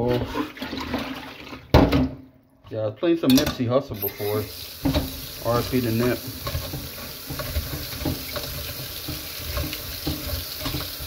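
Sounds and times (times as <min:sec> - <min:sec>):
tap water running: 0:04.0 - 0:11.0
fries knocking in metal strainer: 0:04.8 - 0:11.0.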